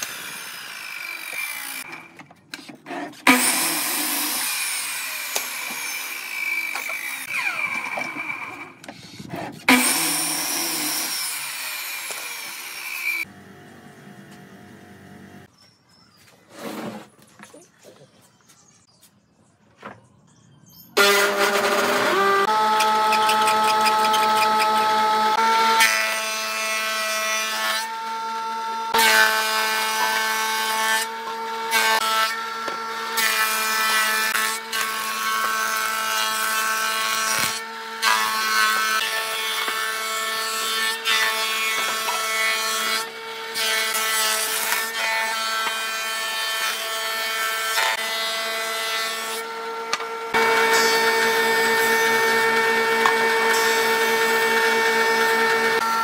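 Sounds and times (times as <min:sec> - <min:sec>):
cutterhead planing wooden boards: 0:00.0 - 0:15.4, 0:21.0 - 0:56.0
planer whining: 0:21.0 - 0:48.2, 0:49.4 - 0:56.0.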